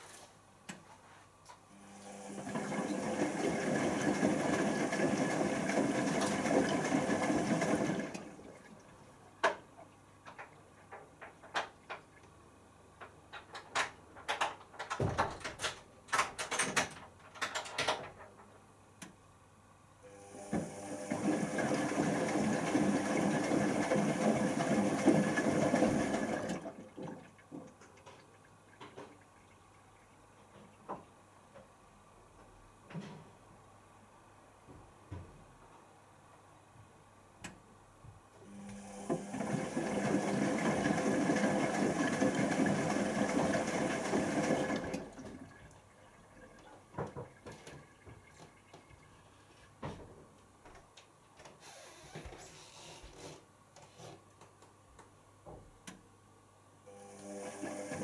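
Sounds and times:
water rushing in washing machine: 0:02.1 - 0:09.6, 0:20.2 - 0:30.0, 0:38.5 - 0:49.2, 0:57.0 - 0:58.0.

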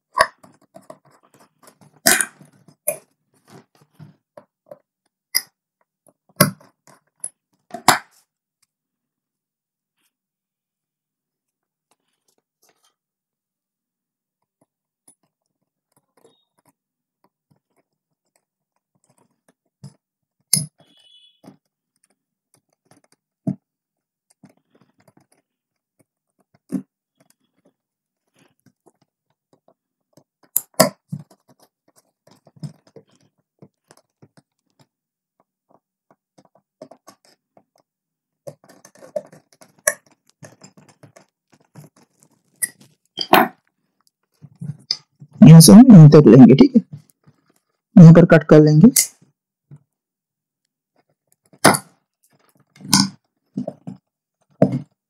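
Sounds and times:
rustling and scraping: 0:00.1 - 0:04.9, 0:11.8 - 0:13.1, 0:24.2 - 0:45.4, 0:46.9 - 0:47.9, 0:50.9 - 0:55.0.

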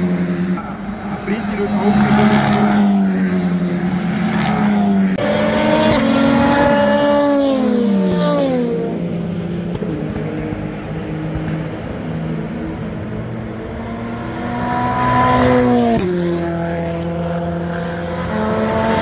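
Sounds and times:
race car engines at speed: 0:00.0 - 0:19.0
car engine passing by: 0:13.5 - 0:19.0.

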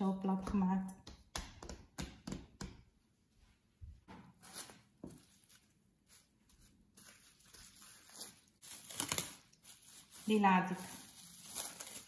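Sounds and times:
cling film crinkling: 0:04.4 - 0:12.0.

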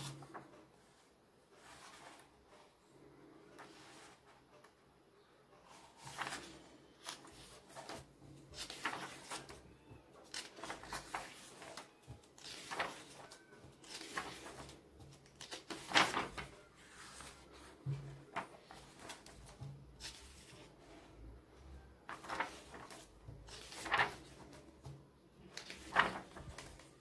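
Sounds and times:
comic book pages turning: 0:05.7 - 0:21.1, 0:22.0 - 0:27.0.

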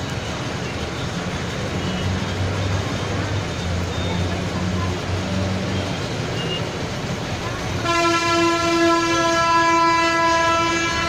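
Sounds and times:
street traffic: 0:00.0 - 0:11.0
long vehicle horn blast: 0:07.8 - 0:11.0.

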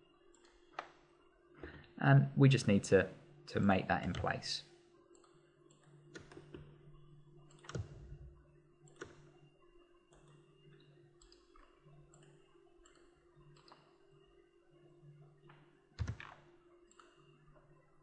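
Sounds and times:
computer mouse clicks: 0:00.3 - 0:01.0, 0:05.1 - 0:06.7, 0:07.5 - 0:08.1, 0:08.8 - 0:09.3, 0:11.2 - 0:14.0, 0:16.9 - 0:17.3.

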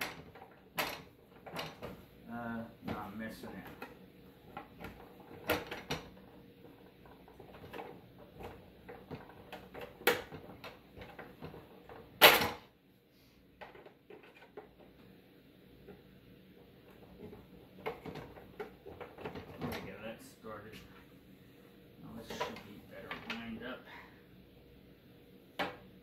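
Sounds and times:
plastic parts clicking and knocking: 0:00.0 - 0:02.0, 0:02.9 - 0:12.6, 0:13.6 - 0:14.9, 0:16.9 - 0:19.9, 0:22.3 - 0:23.5.

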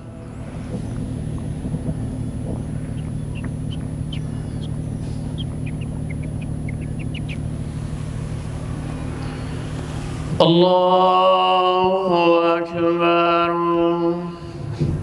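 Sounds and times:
steady low hum: 0:00.0 - 0:15.0
high bird chirps: 0:00.3 - 0:10.0.

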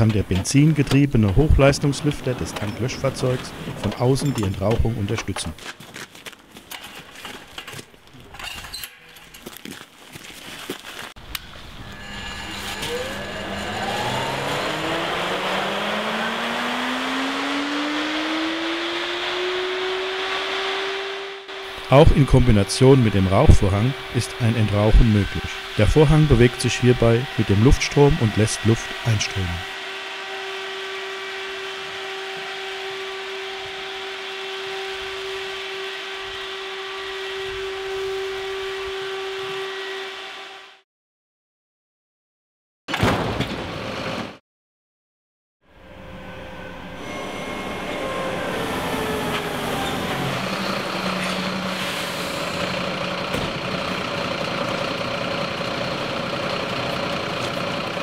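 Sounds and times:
ventilation fan whine: 0:11.2 - 0:19.5
low hum: 0:11.2 - 0:38.9, 0:45.7 - 0:56.2.

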